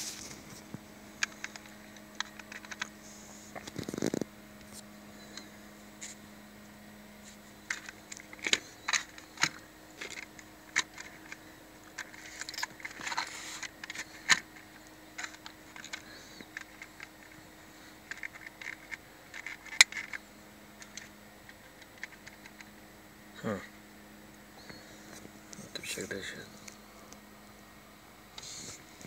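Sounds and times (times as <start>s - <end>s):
plastic toy cars clicking and knocking: 15.2s - 17.4s, 18.0s - 20.2s.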